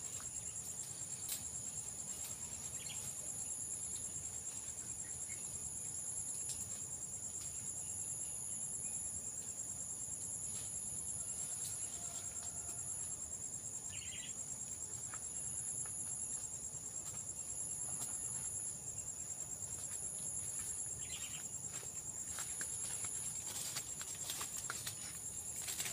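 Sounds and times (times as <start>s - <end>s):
insect trill: 0.0s - 25.9s
short insect chirps: 13.9s - 16.5s, 21.0s - 21.5s.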